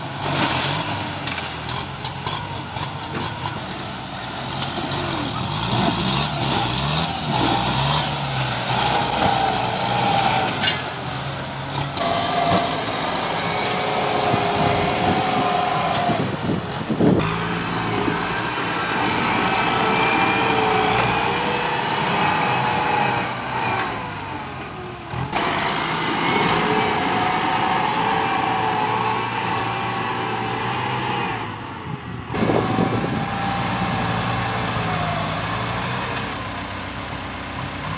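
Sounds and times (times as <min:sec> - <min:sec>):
tractor diesel engine under load: 0:00.0 - 0:37.9.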